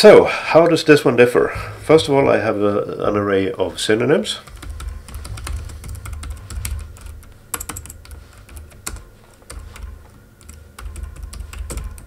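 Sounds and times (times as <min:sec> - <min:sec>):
keyboard typing: 0:04.4 - 0:12.0
low hum: 0:04.4 - 0:12.0.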